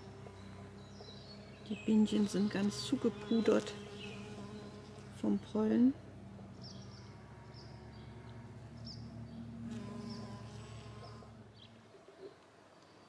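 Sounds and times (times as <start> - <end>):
bee buzzing: 0.0 - 11.8.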